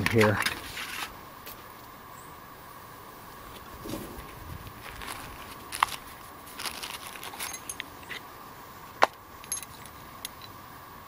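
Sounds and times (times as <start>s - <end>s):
pouch rustling: 3.8s - 7.6s
small hard objects clinking: 4.8s - 7.9s.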